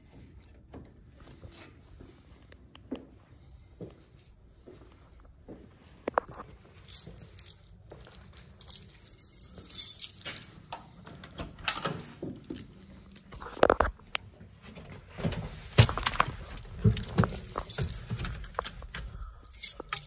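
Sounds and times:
keys jangling: 6.2 - 13.6, 16.1 - 20.0.

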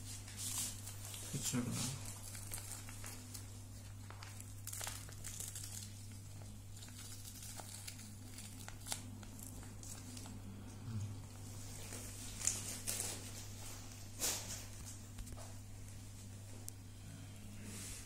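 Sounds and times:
plastic pouch crinkling: 0.4 - 10.4, 11.8 - 13.6.

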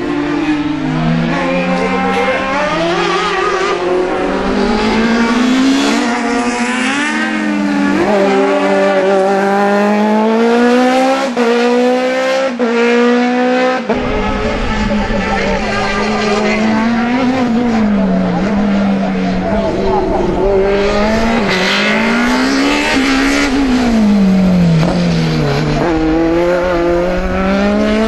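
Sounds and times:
race car engine revving: 0.0 - 28.0.

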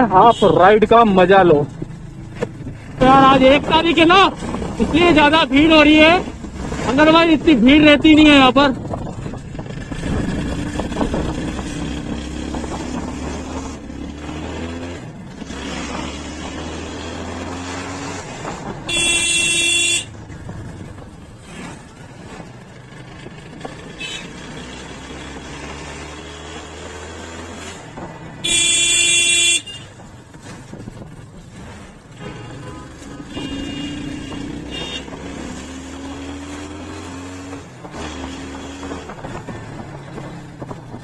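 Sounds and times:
vehicle horn: 18.9 - 20.1, 24.0 - 24.4, 28.4 - 29.9, 32.2 - 35.2.

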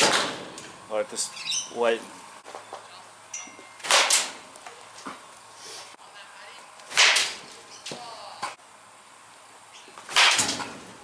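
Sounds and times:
baseball bat hitting ball: 0.0 - 0.6, 3.8 - 4.4, 6.9 - 7.5, 10.0 - 10.9.

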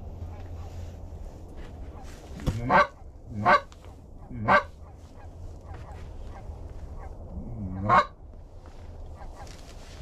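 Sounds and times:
goose honking: 1.9 - 8.2.

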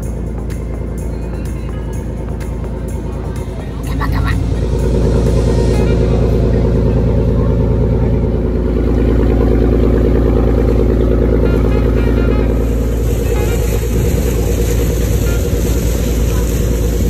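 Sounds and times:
boat engine droning: 0.0 - 17.0
rushing water and wind: 11.0 - 17.0.

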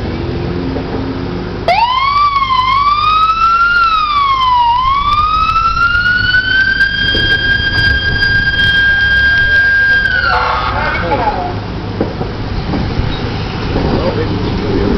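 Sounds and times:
background traffic noise: 0.0 - 14.9
siren wailing: 1.7 - 11.7.

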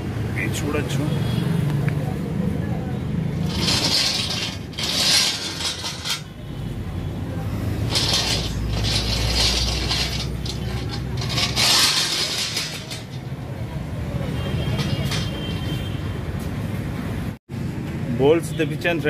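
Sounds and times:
cart wheels rattling on concrete: 3.4 - 6.4, 7.8 - 13.5, 14.5 - 15.7.

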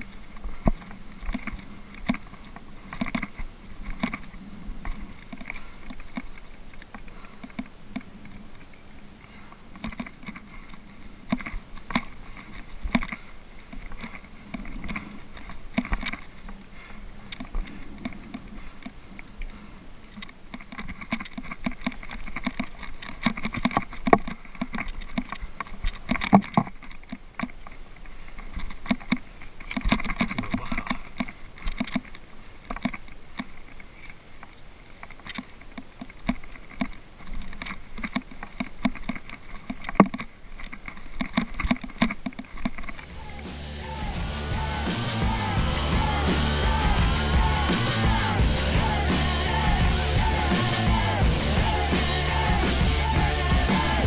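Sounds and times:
climber scrambling over rock: 0.0 - 34.2
clothing and backpack rustling: 0.0 - 43.2.

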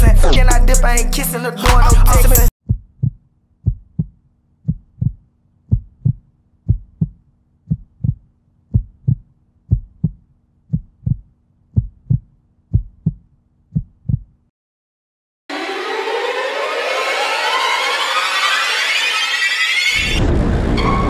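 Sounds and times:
heartbeat double thump: 2.7 - 4.1, 4.7 - 11.2, 11.8 - 14.3.

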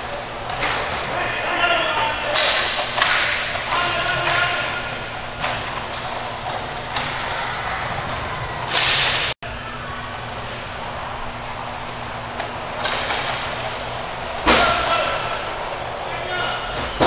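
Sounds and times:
hockey sticks clacking: 0.5 - 7.4, 8.1 - 9.4
players calling out: 3.4 - 5.7.

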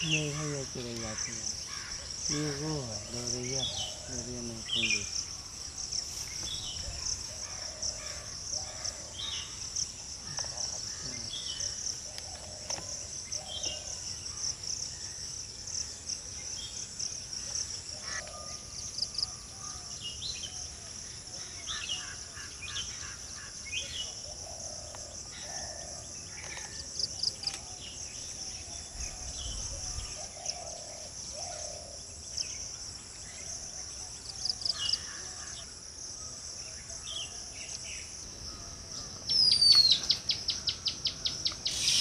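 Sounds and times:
crickets trilling: 0.0 - 42.0
songbirds whistling: 39.3 - 42.0.

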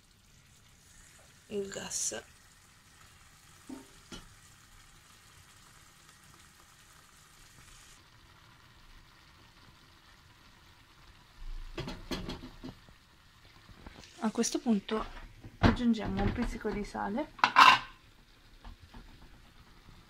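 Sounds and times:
sauce sizzling in frying pan: 0.0 - 20.0
clatter of knocks: 11.8 - 12.8.

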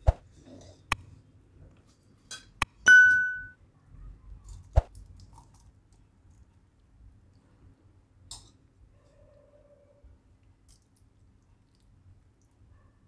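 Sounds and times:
ladle clinking on ceramic plate: 2.3 - 3.6
bell ding: 2.9 - 3.6.

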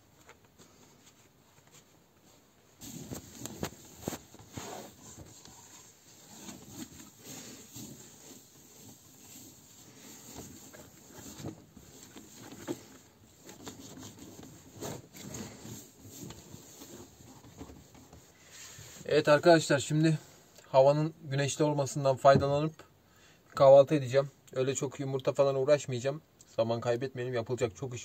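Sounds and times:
paper towel scrubbing table: 2.8 - 19.0.

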